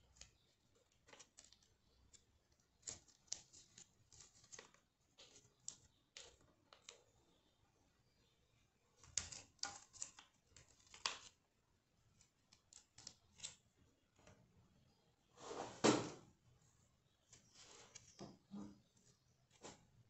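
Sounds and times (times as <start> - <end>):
paper rustling and crinkling: 0.2 - 6.9.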